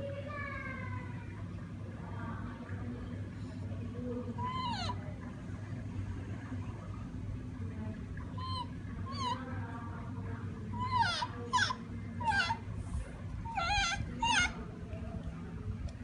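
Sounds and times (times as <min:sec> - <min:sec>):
gibbon squeaky calls: 0:04.4 - 0:05.0, 0:08.4 - 0:09.4, 0:10.8 - 0:12.6, 0:13.4 - 0:14.6.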